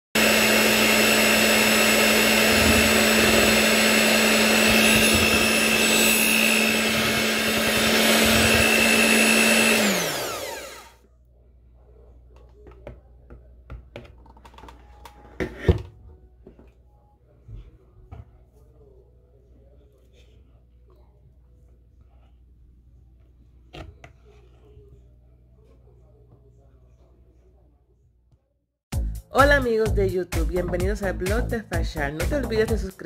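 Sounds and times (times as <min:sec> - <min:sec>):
blender motor whining: 0:00.2 - 0:11.0.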